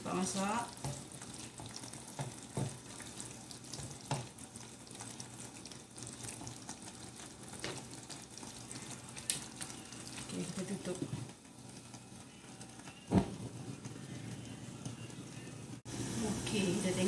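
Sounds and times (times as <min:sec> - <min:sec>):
curry simmering and sizzling: 0:00.0 - 0:17.0
spatula knocking pan: 0:00.7 - 0:03.1.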